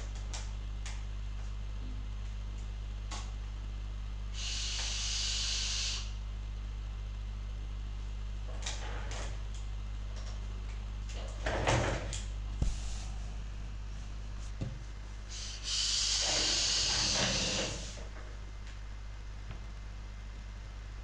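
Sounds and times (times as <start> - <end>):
steady low hum: 0.0 - 21.0
e-cigarette vapour hiss: 4.3 - 6.1, 15.3 - 18.0.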